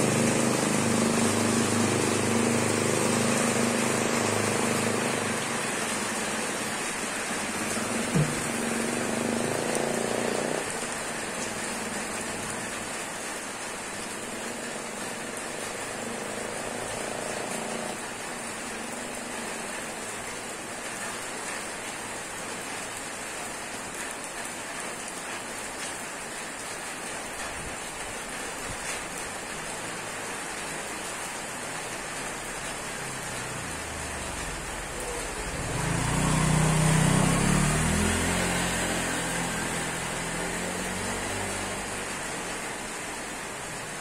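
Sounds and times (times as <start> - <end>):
motorcycle engine approaching: 0.0 - 10.9, 33.0 - 42.6
rain falling on wet street: 0.0 - 44.0.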